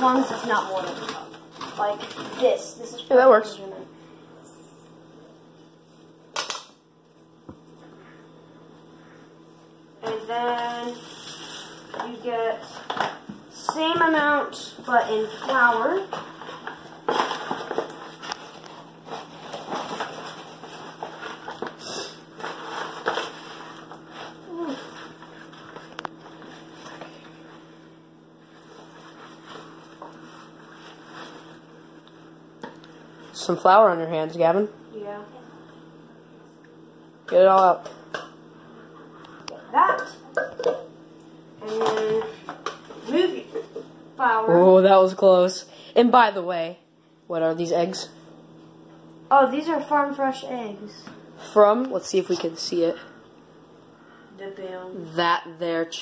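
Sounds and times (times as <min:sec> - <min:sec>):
paper flour bag rustling: 0:00.0 - 0:03.0, 0:10.8 - 0:13.0, 0:14.9 - 0:27.7, 0:28.4 - 0:31.7
steady low hum: 0:00.0 - 0:56.0.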